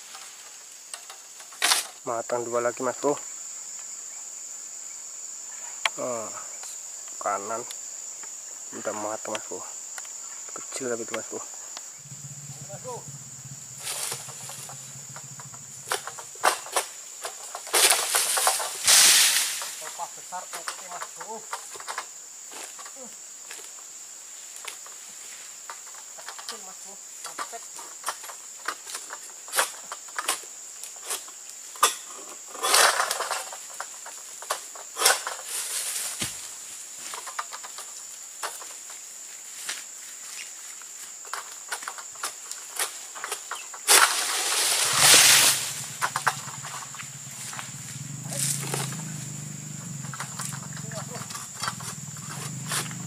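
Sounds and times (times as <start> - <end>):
sickle cutting palm stalks: 0.0 - 2.0, 13.7 - 22.8, 32.6 - 37.8, 39.5 - 53.0
palm fronds rustling: 0.0 - 3.7, 5.4 - 53.0
high insect drone: 0.0 - 53.0
sickle cutting stalk: 13.8 - 14.9, 15.9 - 20.1, 42.5 - 49.3, 50.4 - 53.0
crackling rustle of fruit bunch: 15.9 - 21.9, 32.4 - 49.3.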